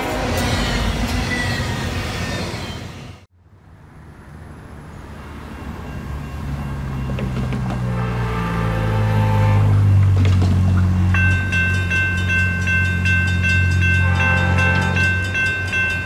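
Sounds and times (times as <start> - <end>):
diesel locomotive engine rumble: 0.0 - 16.0
railroad crossing bell ringing: 5.4 - 8.0, 10.8 - 16.0
distant train horn: 6.6 - 10.2, 13.6 - 15.5.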